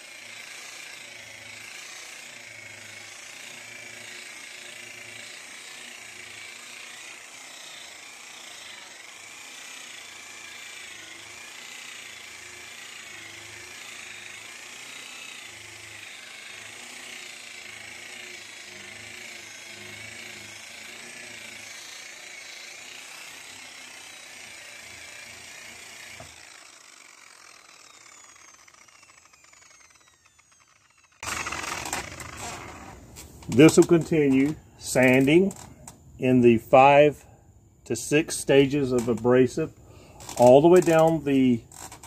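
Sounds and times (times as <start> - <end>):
electric sander running: 0.0 - 36.0, 38.0 - 42.0
sander winding down whine: 0.0 - 37.1, 38.0 - 42.0.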